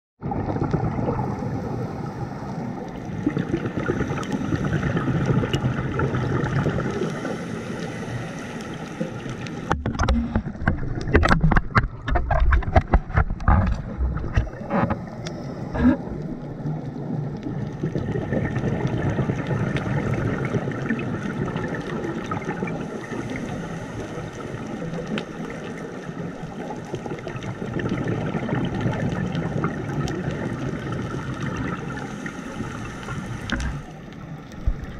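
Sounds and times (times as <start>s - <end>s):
crackling bubble pops: 0.2s - 1.8s, 3.1s - 7.1s, 9.6s - 15.1s, 15.7s - 22.7s, 26.6s - 31.8s
bubbles rushing and gurgling: 0.2s - 34.9s
regulator breathing underwater: 3.7s - 5.4s, 6.7s - 9.7s, 14.4s - 16.4s, 22.6s - 24.6s, 31.1s - 34.0s.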